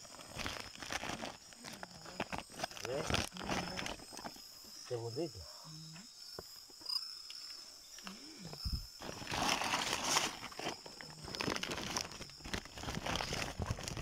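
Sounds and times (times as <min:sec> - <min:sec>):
plastic sack rustling: 0:00.0 - 0:04.4, 0:09.0 - 0:14.0.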